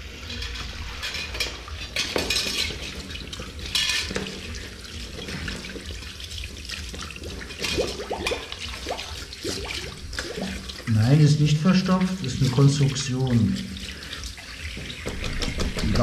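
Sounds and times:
metal clinks and scrapes: 0:00.2 - 0:05.9
tap water splashing: 0:00.2 - 0:16.0.

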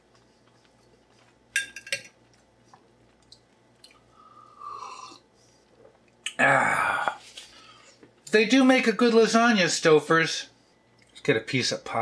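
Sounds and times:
metal fork clinking on dish: 0:01.6 - 0:02.1.

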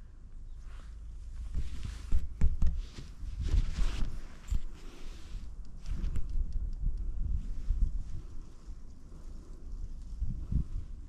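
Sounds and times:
wind buffeting microphone: 0:05.4 - 0:11.0.

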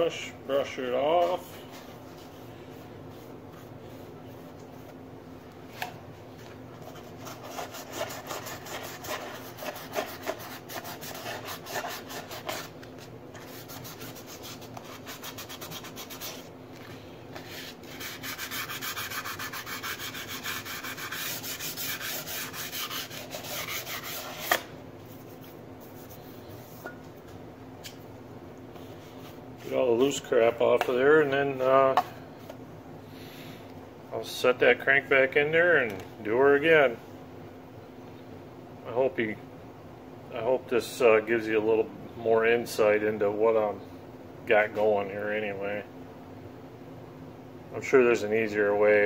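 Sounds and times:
sandpaper rubbing on metal: 0:07.2 - 0:12.7, 0:13.4 - 0:16.5, 0:17.5 - 0:24.6.

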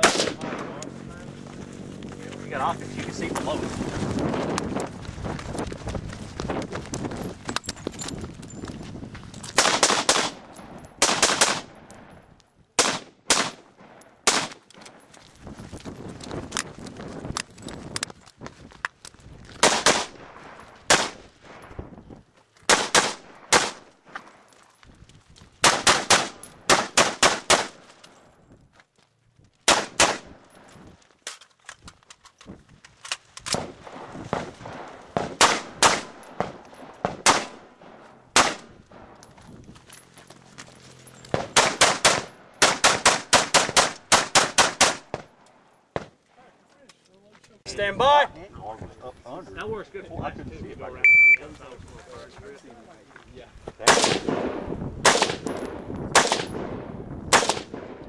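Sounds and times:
rifle gunshots: 0:00.0 - 0:00.9, 0:09.6 - 0:11.9, 0:12.8 - 0:14.7, 0:19.6 - 0:21.6, 0:22.7 - 0:23.9, 0:25.6 - 0:27.8, 0:29.6 - 0:30.4, 0:33.5 - 0:39.2, 0:41.3 - 0:46.2, 0:53.8 - 0:58.0.

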